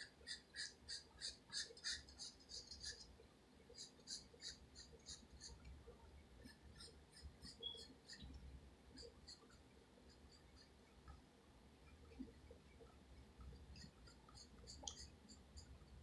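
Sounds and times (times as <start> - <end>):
pencil scratching on paper: 0.0 - 3.1, 3.7 - 5.7, 6.4 - 11.0, 13.4 - 16.0.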